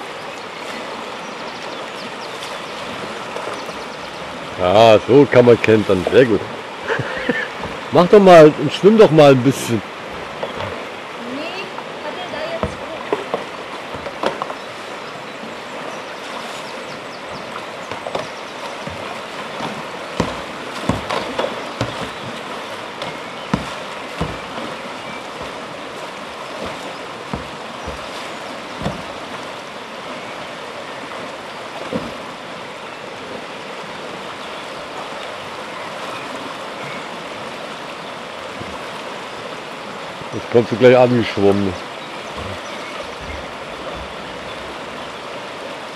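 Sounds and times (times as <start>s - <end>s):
river rushing over rapids: 0.0s - 45.9s
brief thumps: 28.8s - 29.3s.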